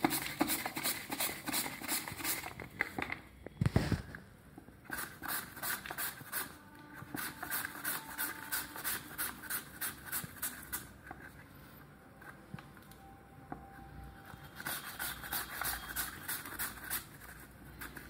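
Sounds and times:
potato rasping on mandoline slicer: 0:04.9 - 0:10.9, 0:14.7 - 0:18.0.

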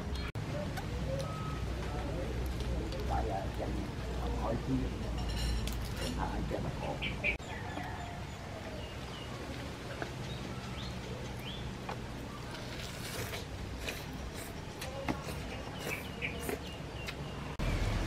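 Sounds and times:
birds chirping: 0:05.9 - 0:18.0.

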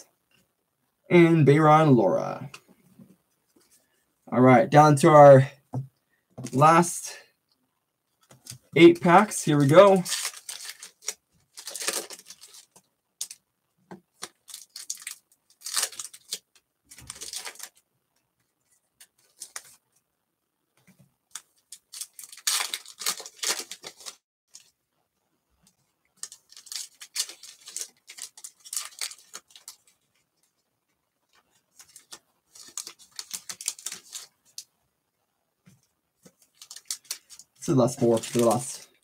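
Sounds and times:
foil wrappers crinkling and tearing: 0:09.2 - 0:13.4, 0:14.1 - 0:17.8, 0:19.1 - 0:19.8, 0:21.3 - 0:24.7, 0:26.2 - 0:30.1, 0:31.7 - 0:34.6, 0:36.4 - 0:39.0.

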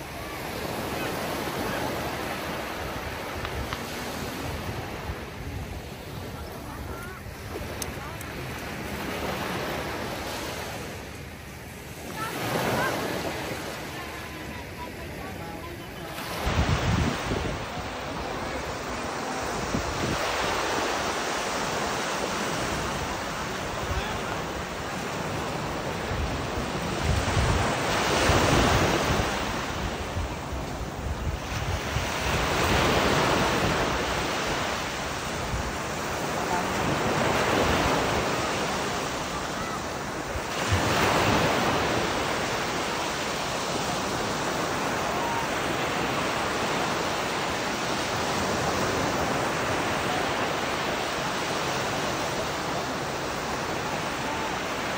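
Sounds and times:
waves washing onto beach: 0:00.0 - 0:54.9
wind rumbling on microphone: 0:16.3 - 0:42.8.

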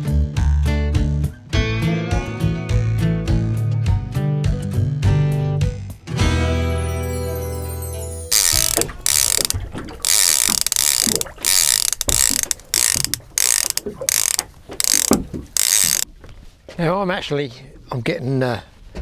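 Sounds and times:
fishing reel ratchet clicking: 0:08.3 - 0:16.0.

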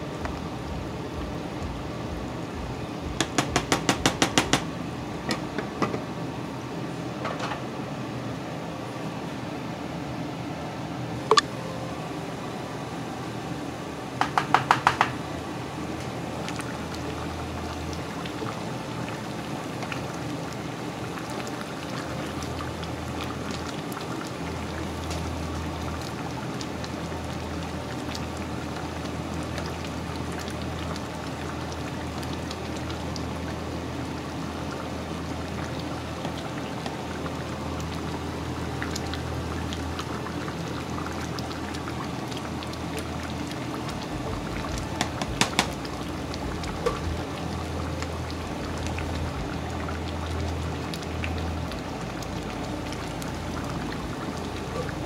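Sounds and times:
stew bubbling in a pot: 0:00.0 - 0:07.2, 0:13.5 - 0:55.0.

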